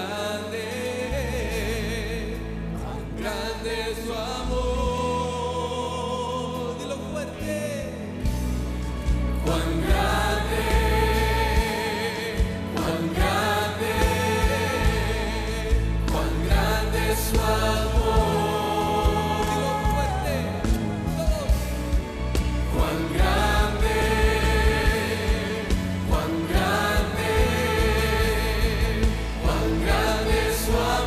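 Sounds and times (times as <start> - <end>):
sustained bass notes: 1.1 - 31.0
voices singing together: 9.2 - 31.0.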